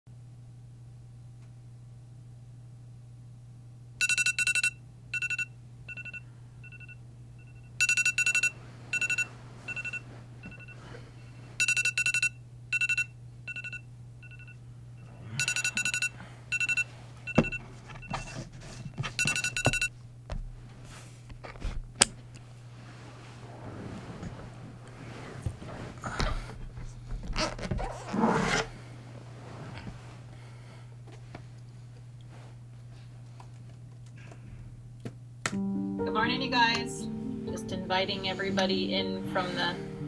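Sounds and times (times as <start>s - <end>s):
alarm beeping: 4.0s - 10.8s, 11.6s - 18.3s, 19.2s - 19.9s
bedding rustling: 8.6s - 11.6s, 20.3s - 33.9s.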